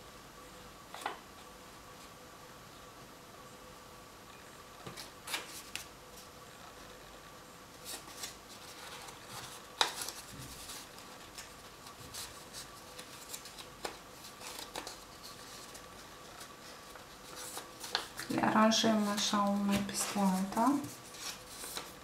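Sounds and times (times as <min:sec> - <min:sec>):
paper rustling and crinkling: 0:04.8 - 0:22.0.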